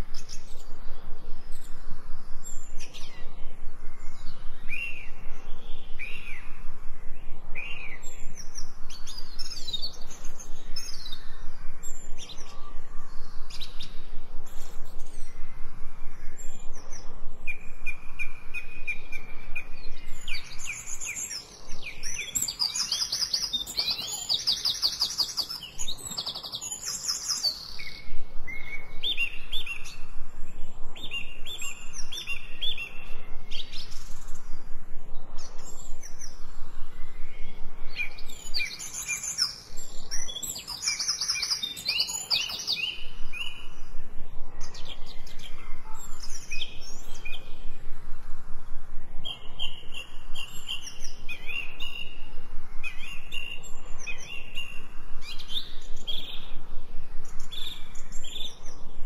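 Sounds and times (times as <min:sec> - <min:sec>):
songbirds trilling and chirping: 0:00.0 - 0:59.0.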